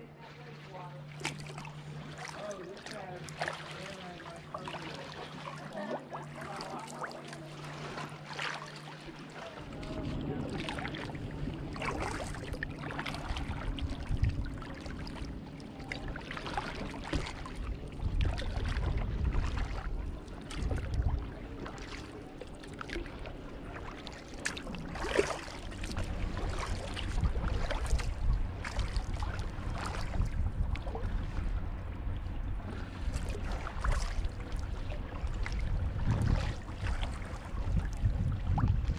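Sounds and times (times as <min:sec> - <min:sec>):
paddle splashing in water: 0:00.0 - 0:38.9
water dripping and lapping: 0:00.0 - 0:38.9
wind rumble on microphone: 0:09.4 - 0:38.9.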